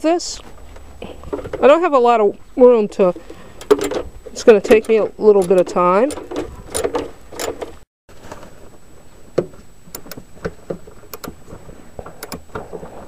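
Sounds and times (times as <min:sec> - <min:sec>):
socket wrench ratchet clicking: 0:04.7 - 0:07.6, 0:09.9 - 0:10.2.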